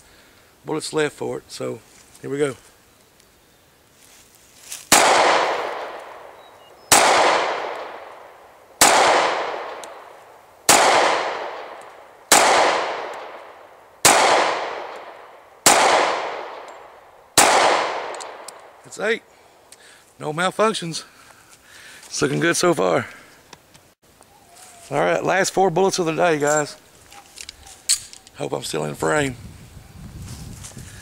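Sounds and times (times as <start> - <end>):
pistol shots with echo: 4.9 - 10.1, 10.7 - 18.8.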